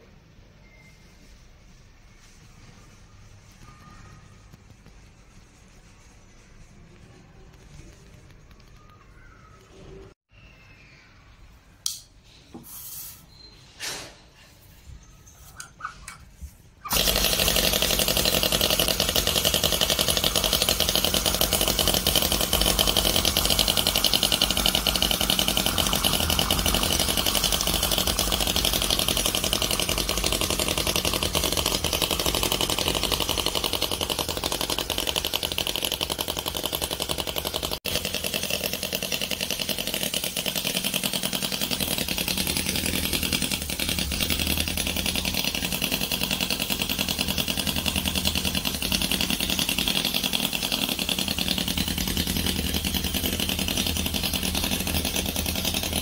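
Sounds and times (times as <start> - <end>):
model engine popping rattle: 16.8 - 56.0.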